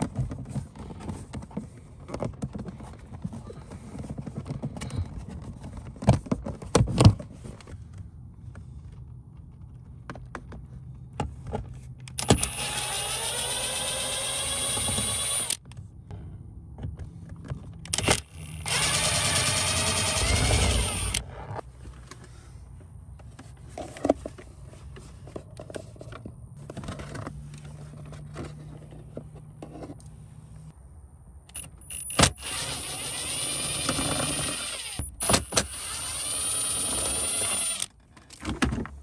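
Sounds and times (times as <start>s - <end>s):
cordless power driver whirring: 12.2s - 15.6s, 17.9s - 21.3s, 31.6s - 37.9s.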